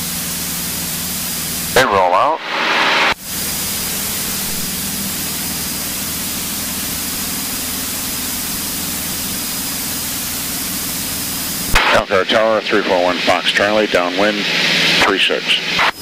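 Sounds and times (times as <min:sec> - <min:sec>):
propeller airplane engine drone: 0:00.0 - 0:16.0.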